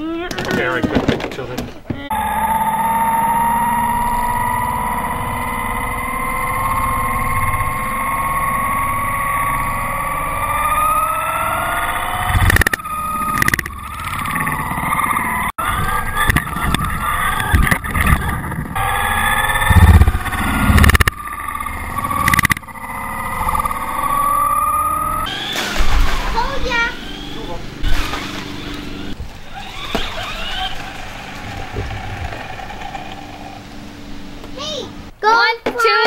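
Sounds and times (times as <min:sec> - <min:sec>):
knocks and thumps: 0:00.2 - 0:02.1
electric motor whining: 0:02.0 - 0:35.1.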